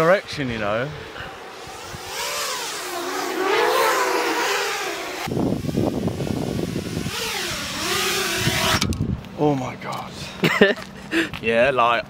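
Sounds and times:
rough noisy rush: 0:00.0 - 0:09.1
drone motors whining: 0:00.8 - 0:09.1.

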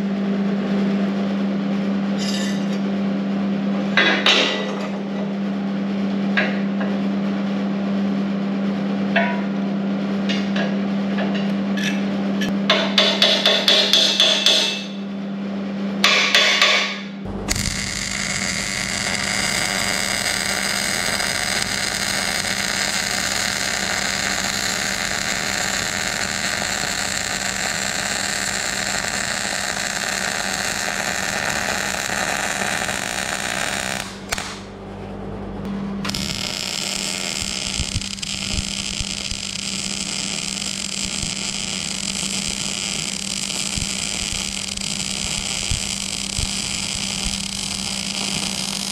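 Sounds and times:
welding arc crackling: 0:17.3 - 0:34.7, 0:36.0 - 0:48.9.

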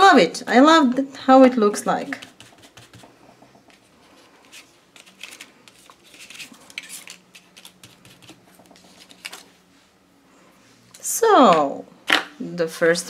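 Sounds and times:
paper rustling and clicks: 0:04.4 - 0:09.5.

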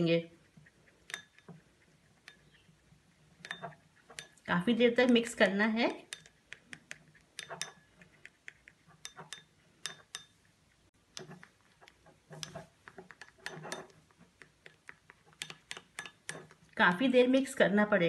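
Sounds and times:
metal spoon clinking in glass bowl: 0:01.1 - 0:01.4, 0:03.4 - 0:04.5, 0:06.1 - 0:06.3, 0:07.4 - 0:07.9, 0:09.0 - 0:10.4, 0:15.4 - 0:16.4.

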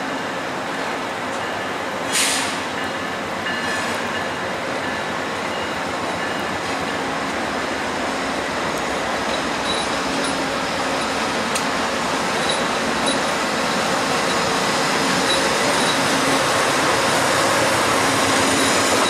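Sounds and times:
diesel locomotive running: 0:00.1 - 0:19.0
short sharp hiss: 0:02.1 - 0:02.7.

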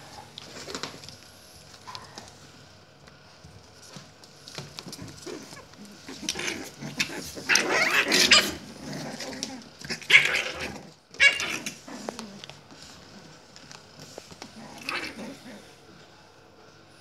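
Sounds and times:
puppies yapping and growling: 0:04.8 - 0:12.5, 0:14.6 - 0:15.8.

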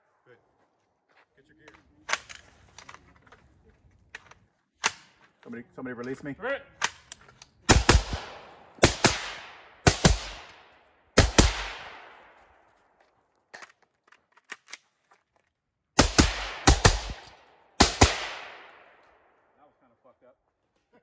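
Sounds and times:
rifle shots echoing: 0:07.7 - 0:12.7, 0:16.0 - 0:19.5.

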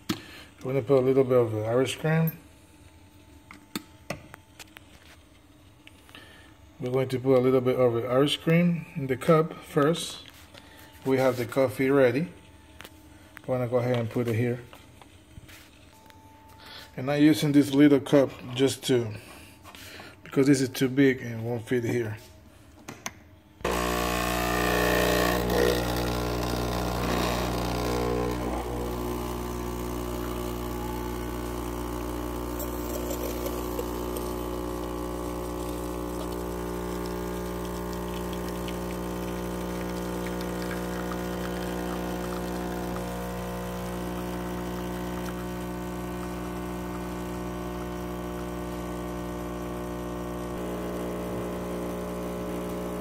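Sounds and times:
espresso machine pump humming: 0:23.6 - 0:53.0.

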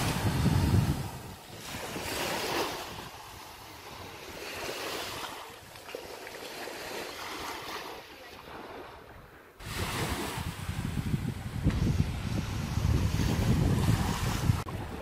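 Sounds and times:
wind buffeting microphone: 0:00.0 - 0:05.3, 0:08.5 - 0:15.0
small waves washing on beach: 0:00.0 - 0:15.0.

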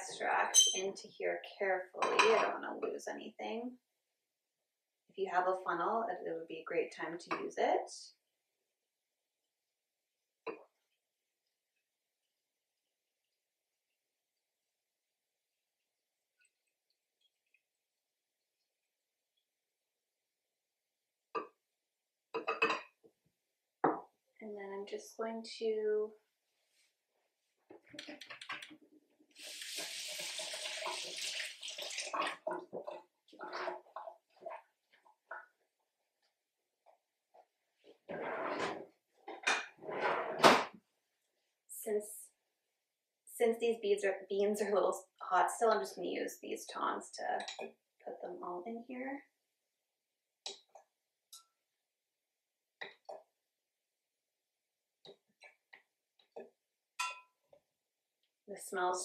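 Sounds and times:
kitchenware clinking: 0:00.5 - 0:00.8, 0:22.4 - 0:23.0, 0:57.0 - 0:57.3
kitchen tap running: 0:29.3 - 0:32.8.

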